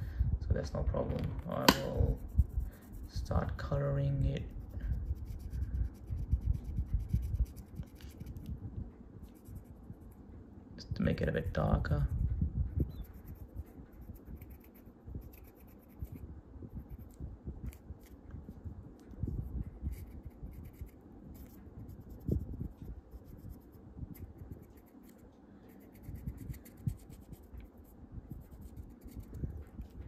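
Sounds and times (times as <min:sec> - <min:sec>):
marker scratching on plastic: 0:04.4 - 0:08.5, 0:12.8 - 0:18.2, 0:19.8 - 0:30.0.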